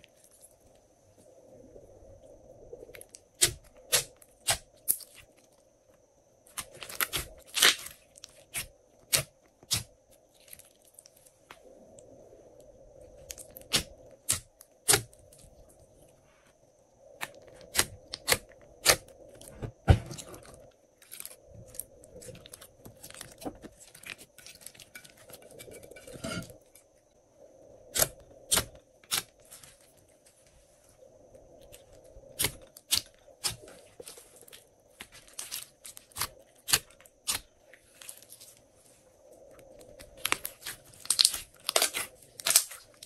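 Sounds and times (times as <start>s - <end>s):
slime being stretched and kneaded: 40.0s - 43.0s.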